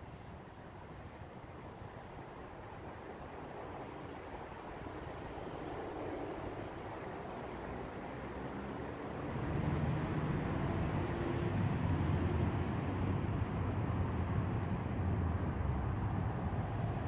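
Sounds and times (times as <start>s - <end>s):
passing vehicles rumble: 4.5s - 17.0s.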